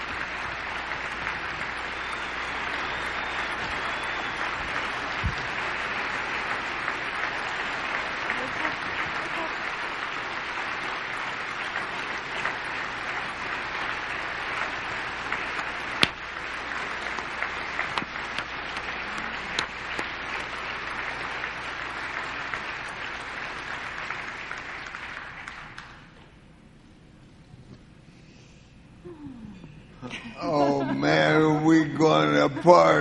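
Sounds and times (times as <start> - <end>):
sharp individual claps: 0.0 - 26.2
audience applauding: 0.0 - 26.3.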